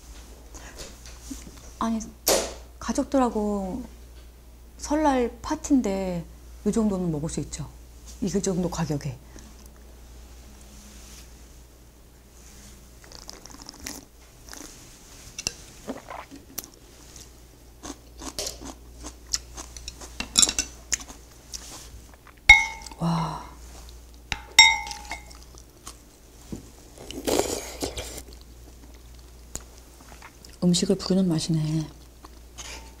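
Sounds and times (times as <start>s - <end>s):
chewing: 13.0s - 14.8s, 15.8s - 16.8s, 25.0s - 26.0s, 27.0s - 30.6s
slurping soup: 13.0s - 14.8s, 15.7s - 16.5s
spoon clinking on pot: 22.5s - 23.0s, 24.4s - 25.3s.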